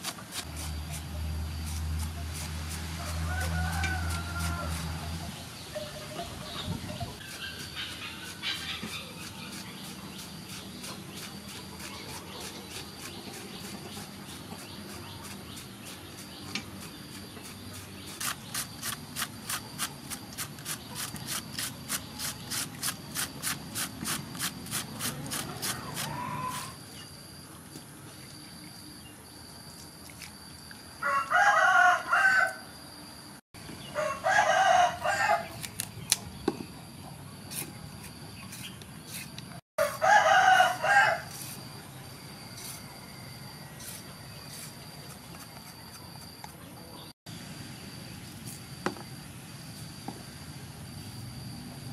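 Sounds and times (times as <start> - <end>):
rooster crowing: 3.0 - 5.3, 25.7 - 26.8, 31.0 - 32.8, 33.9 - 35.6, 39.8 - 41.6
cabbage rasping on hand shredder: 7.2 - 26.7.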